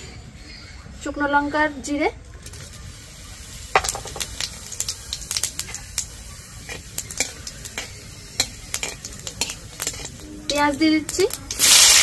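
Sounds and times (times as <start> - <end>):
spices sizzling in hot oil: 1.9 - 12.0
metal spatula scraping pan: 6.7 - 10.7.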